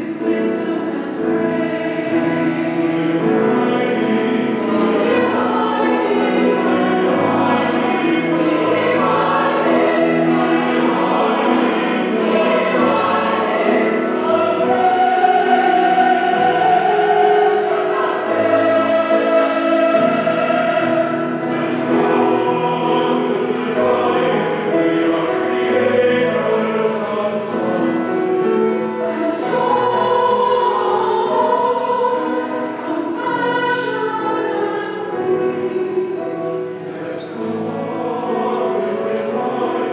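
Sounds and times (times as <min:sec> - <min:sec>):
choir singing in harmony: 0:00.0 - 0:39.9.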